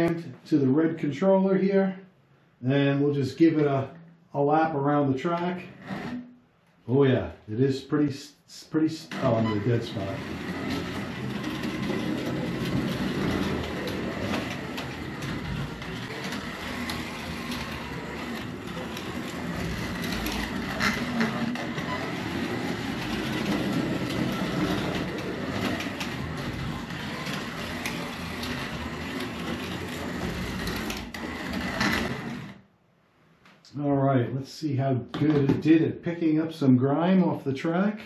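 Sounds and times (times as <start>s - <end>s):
slot car running on track: 9.1s - 32.6s.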